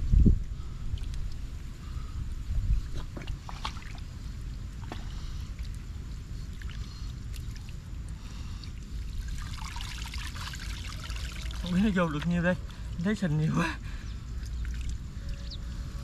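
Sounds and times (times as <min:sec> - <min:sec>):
low steady rumble: 0:00.0 - 0:16.0
water sloshing and splashing: 0:02.8 - 0:13.5, 0:14.3 - 0:15.3.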